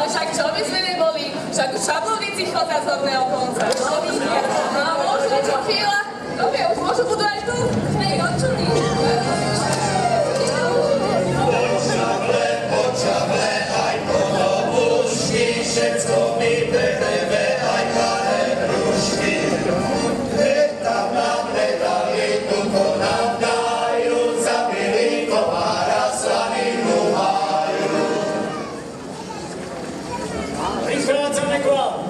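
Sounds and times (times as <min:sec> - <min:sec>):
accordion: 0:07.6 - 0:28.8
men singing folk song: 0:09.3 - 0:28.4.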